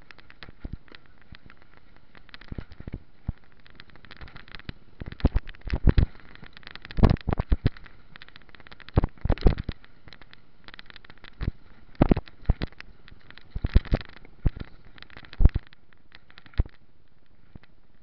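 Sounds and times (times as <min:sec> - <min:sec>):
bicycle rattling over rough ground: 0:00.0 - 0:18.0
steady rolling noise: 0:00.0 - 0:18.0.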